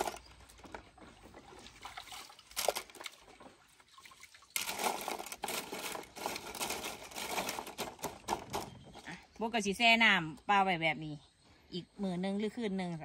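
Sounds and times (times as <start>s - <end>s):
water splashing: 0.0s - 6.2s
water sloshing and trickling: 0.0s - 9.4s.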